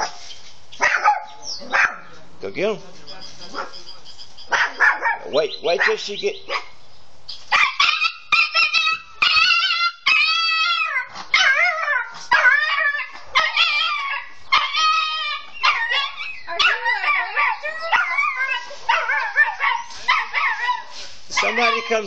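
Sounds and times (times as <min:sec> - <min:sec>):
small dog yapping: 0:00.8 - 0:02.1, 0:04.5 - 0:06.8, 0:07.5 - 0:22.0.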